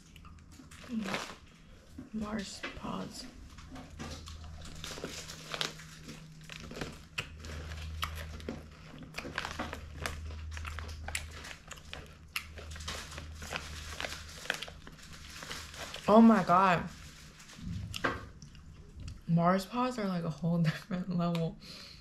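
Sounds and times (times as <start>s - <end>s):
steady low hum: 0.0s - 22.0s
plastic wrapper crinkling: 0.1s - 2.0s, 2.9s - 18.6s
crunchy chewing: 3.5s - 16.1s.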